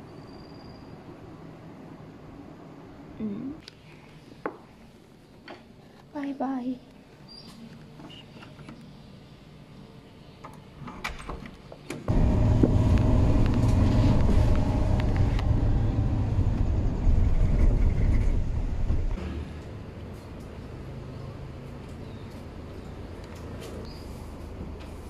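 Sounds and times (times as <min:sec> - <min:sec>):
van engine and road rumble: 0:12.1 - 0:25.0.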